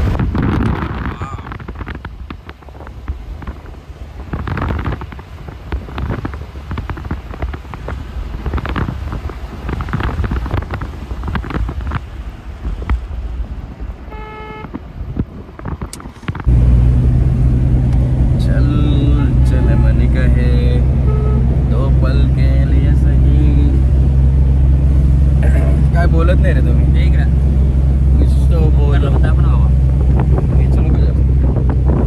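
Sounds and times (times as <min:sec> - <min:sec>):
road rumble: 0:00.0 - 0:32.0
wind buffeting microphone: 0:00.0 - 0:32.0
car horn: 0:14.0 - 0:14.8, 0:19.4 - 0:20.3, 0:21.0 - 0:21.6
low engine drone: 0:16.0 - 0:32.0.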